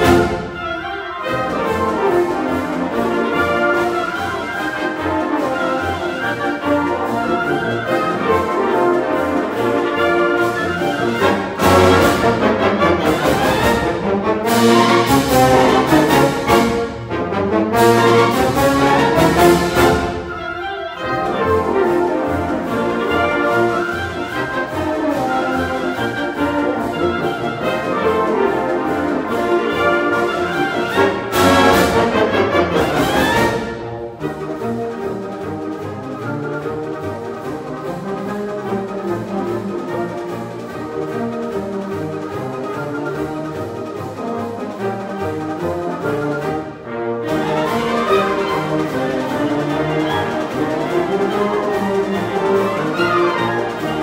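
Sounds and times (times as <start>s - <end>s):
concert band playing: 0.0s - 54.0s
percussion hits: 47.2s - 54.0s.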